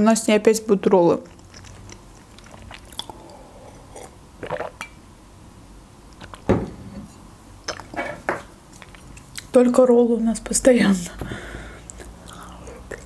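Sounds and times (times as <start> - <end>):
person gulping juice: 1.3 - 4.9, 11.8 - 13.0.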